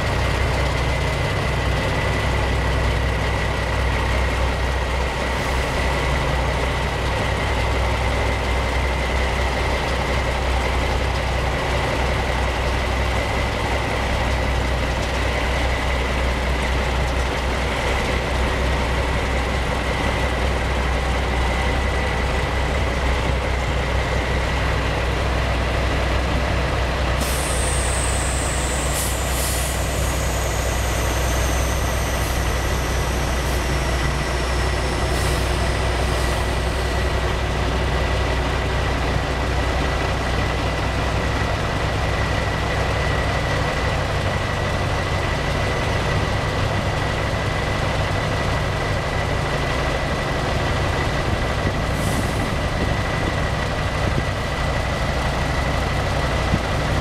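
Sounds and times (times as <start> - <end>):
crane engine idling: 0.0 - 57.0
high whine: 27.5 - 37.3.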